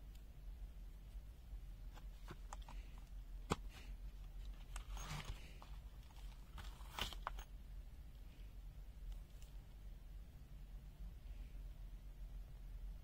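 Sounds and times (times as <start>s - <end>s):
crinkling rustle: 1.9s - 7.5s.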